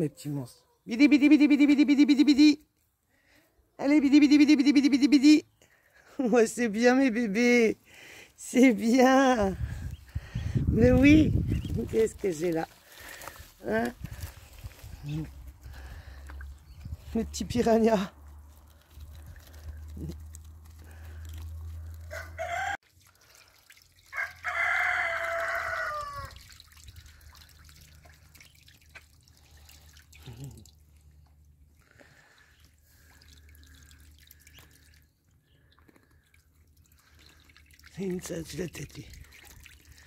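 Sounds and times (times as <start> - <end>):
ducklings splashing in water: 9.0 - 40.0
rooster crowing: 22.1 - 22.8, 24.1 - 26.4.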